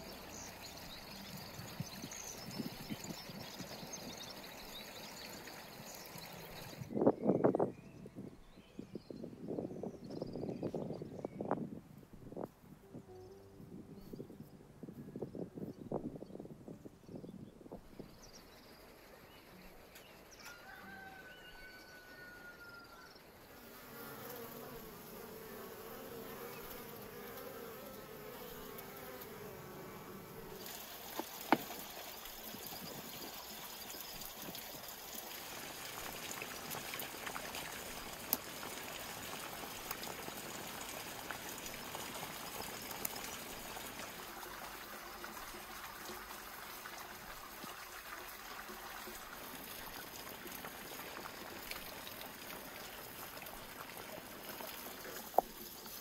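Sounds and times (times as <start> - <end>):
fly buzzing: 23.4 - 31.8.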